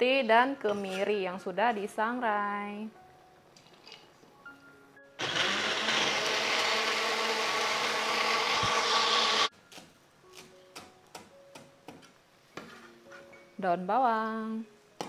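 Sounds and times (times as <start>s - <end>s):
electric blender running: 5.2s - 9.5s.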